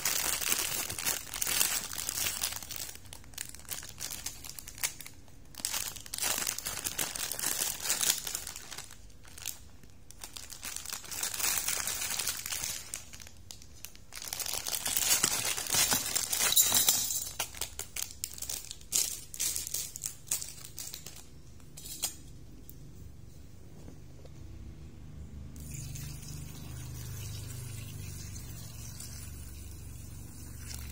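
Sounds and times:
plastic packet crinkling: 0.0s - 22.2s.

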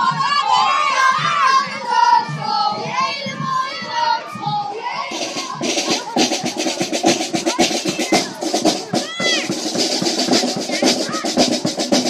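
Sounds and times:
children singing together: 0.0s - 12.0s
drum beating steadily: 0.0s - 12.0s
marching band playing: 4.7s - 12.0s.

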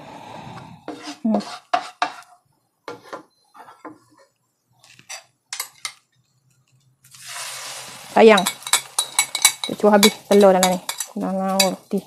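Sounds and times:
spoon rattling in glass bowl: 8.3s - 11.8s.

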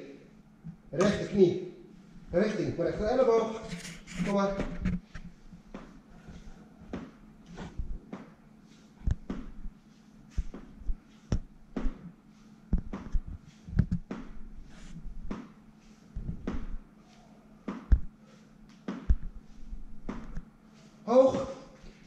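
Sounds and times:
soft thumps on gym mat: 9.1s - 9.6s, 10.4s - 12.1s, 12.8s - 14.4s, 16.2s - 16.8s, 20.0s - 20.4s.

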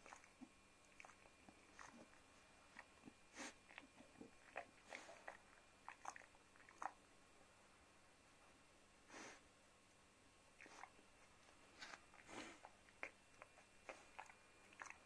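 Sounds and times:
dog crunching food: 0.0s - 7.0s, 11.8s - 15.0s
dog breathing: 3.3s - 6.2s, 11.8s - 15.0s.

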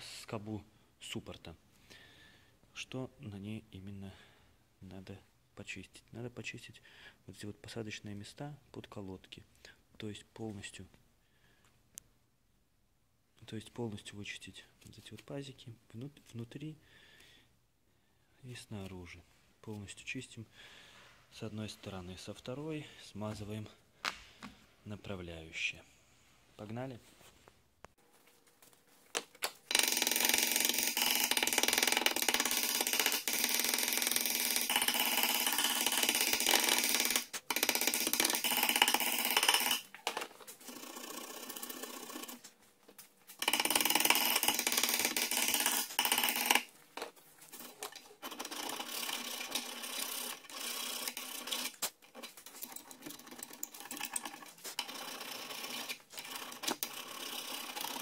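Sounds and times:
pointed tool scraping metal: 34.6s - 42.5s.

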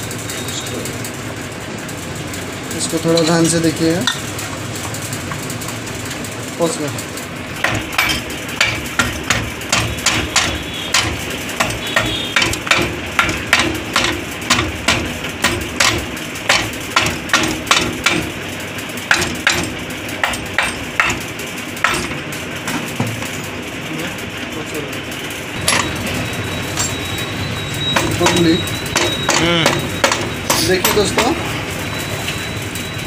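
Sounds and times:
hammer tapping on metal: 7.6s - 18.4s, 19.0s - 23.3s, 25.6s - 27.2s, 27.8s - 31.4s.

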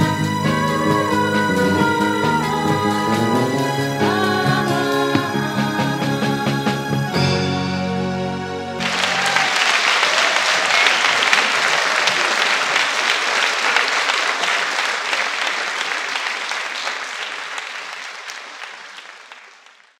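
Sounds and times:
held music chord: 0.0s - 9.0s
audience applause: 8.8s - 19.9s.

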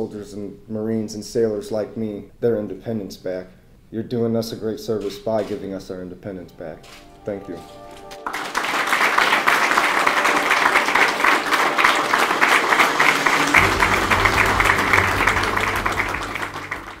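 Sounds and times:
audience applauding: 8.1s - 17.0s
background music with low bass: 13.5s - 17.0s.

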